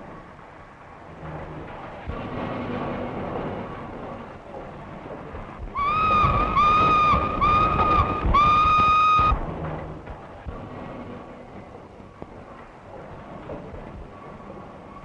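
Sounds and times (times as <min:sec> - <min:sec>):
rumbling hiss of locomotive: 0:00.0 - 0:15.0
steam locomotive whistle blasts: 0:05.8 - 0:09.4.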